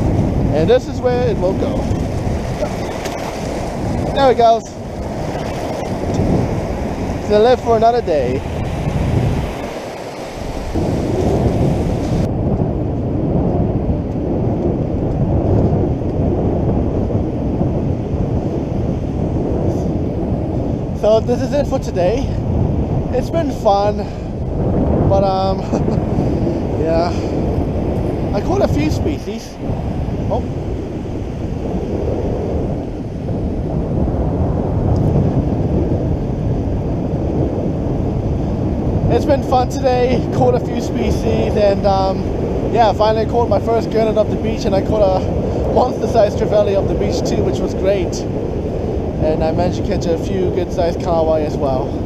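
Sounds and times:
surf: 0:00.0 - 0:12.4
surf breaking on beach: 0:00.0 - 0:12.4, 0:17.4 - 0:52.0
wind buffeting microphone: 0:00.0 - 0:52.0.

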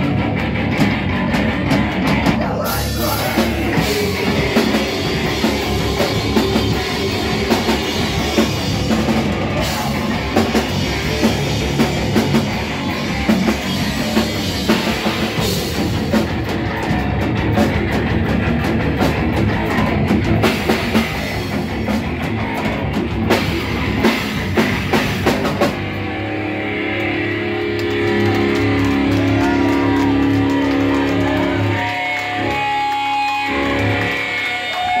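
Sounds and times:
heavy rock band playing: 0:00.0 - 0:35.0
electric guitar ringing notes: 0:25.7 - 0:35.0.

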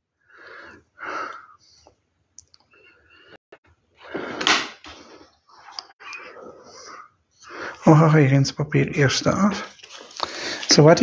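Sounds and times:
paper and fabric rustling: 0:09.4 - 0:11.0.

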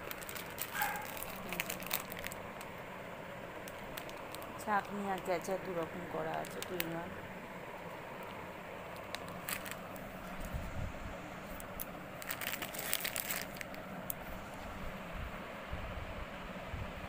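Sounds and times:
plastic packaging crinkling: 0:00.0 - 0:02.8, 0:03.6 - 0:07.1, 0:07.8 - 0:10.6, 0:11.5 - 0:14.6
low background hum: 0:00.0 - 0:17.0.

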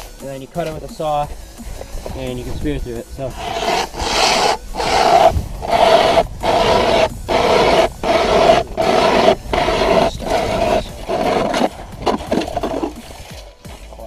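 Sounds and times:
hand saw rasping through ice: 0:03.3 - 0:13.4.

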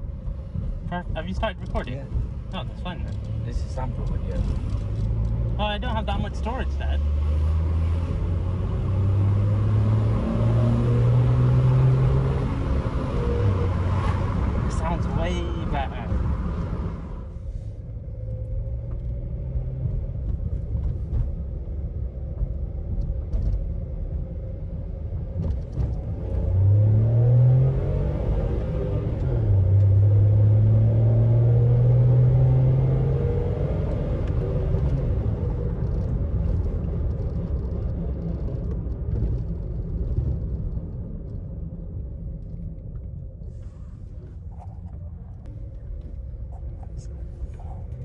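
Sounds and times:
car engine revving: 0:01.0 - 0:17.3, 0:25.4 - 0:40.6.

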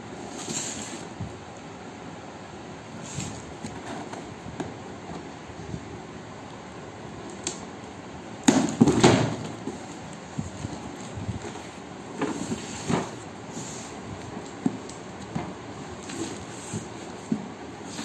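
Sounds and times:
cardboard rustling: 0:08.8 - 0:18.0
box scraping on floor: 0:12.2 - 0:14.0.

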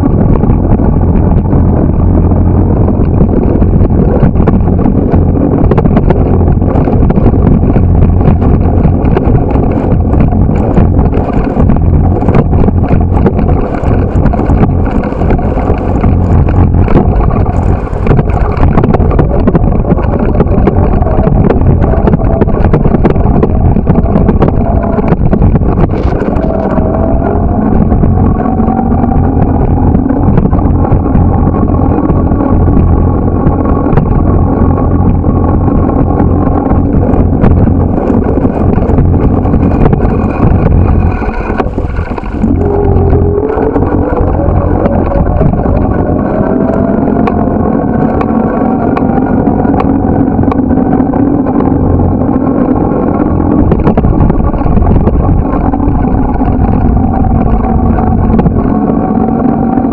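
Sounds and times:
wind buffeting microphone: 0:00.0 - 0:59.9
bike clicks and rattles: 0:03.0 - 0:27.7
road traffic: 0:36.3 - 0:52.5
rising tone: 0:37.4 - 0:51.5.

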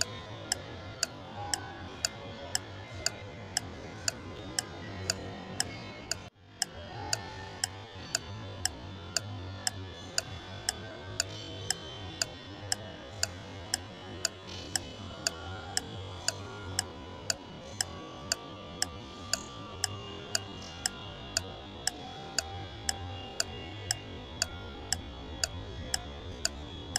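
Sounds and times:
clock ticking: 0:00.0 - 0:01.6, 0:04.5 - 0:06.3
quiet background music: 0:00.0 - 0:26.9.

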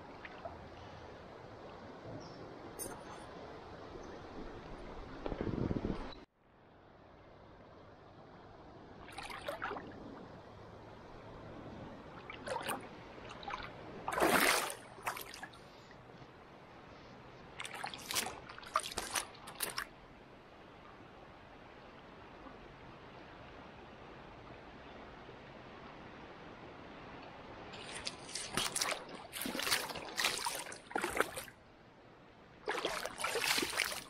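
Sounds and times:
flowing river water: 0:00.0 - 0:05.9, 0:06.5 - 0:34.0
water splashing: 0:09.0 - 0:10.3, 0:12.0 - 0:15.8, 0:17.5 - 0:19.9, 0:27.7 - 0:31.6, 0:32.6 - 0:34.0.

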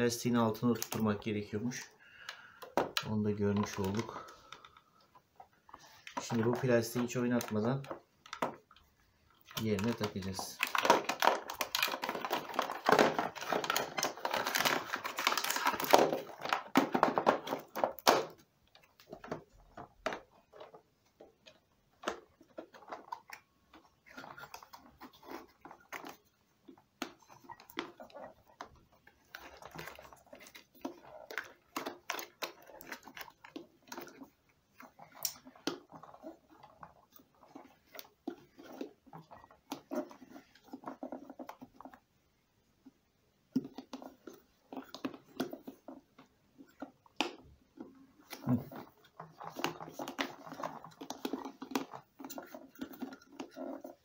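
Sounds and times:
plastic parts clicking and knocking: 0:00.0 - 0:54.0.

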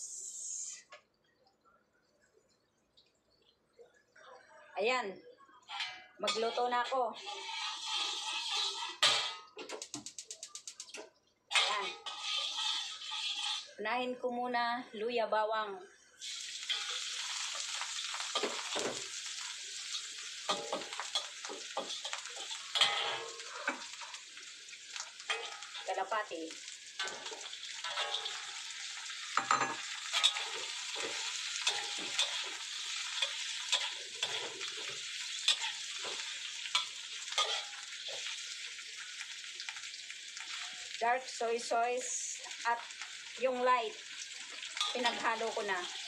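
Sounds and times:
garlic and ginger sizzling in oil: 0:05.6 - 0:14.6, 0:16.1 - 0:46.0
spatula scraping wok: 0:05.7 - 0:10.9, 0:11.5 - 0:13.8, 0:16.2 - 0:41.0, 0:44.0 - 0:46.0.

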